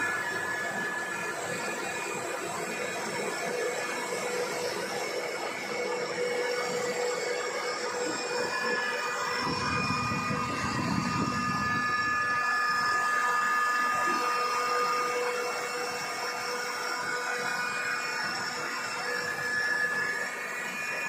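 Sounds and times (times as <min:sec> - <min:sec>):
air compressor running: 0:00.0 - 0:21.0
whining tones: 0:00.0 - 0:21.0.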